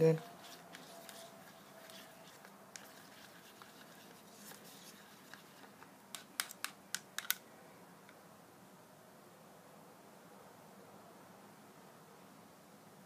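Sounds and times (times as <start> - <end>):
stick scraping in plastic cup: 0.1 - 6.6
stick clicking against cup: 1.9 - 4.6, 5.2 - 7.4.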